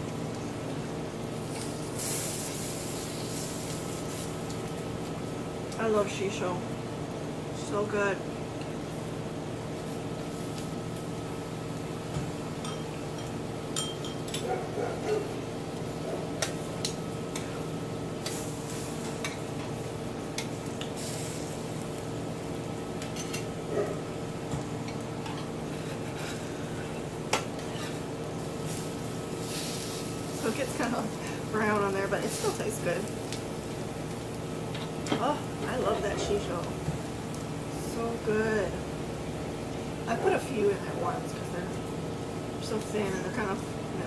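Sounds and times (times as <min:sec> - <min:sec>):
steady hum: 0:00.0 - 0:44.0
chopsticks and tongs clicking on grill pan: 0:12.6 - 0:17.6, 0:18.2 - 0:18.4, 0:19.1 - 0:21.0.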